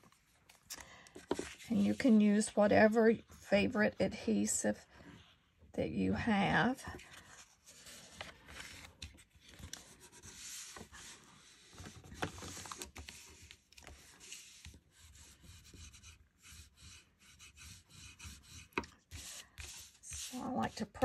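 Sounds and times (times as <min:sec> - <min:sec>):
paper rustling and rubbing: 0:01.2 - 0:02.5, 0:07.0 - 0:21.0
bone folder rubbing paper: 0:09.8 - 0:21.0.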